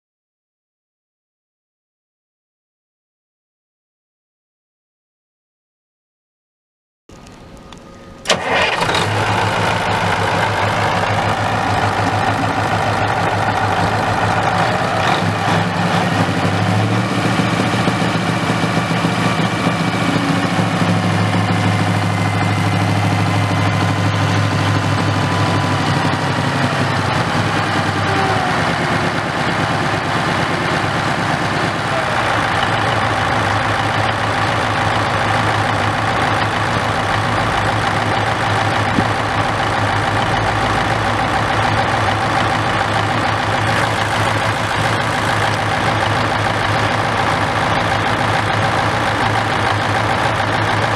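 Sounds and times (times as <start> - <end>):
tractor diesel engine idling: 7.2 - 50.9.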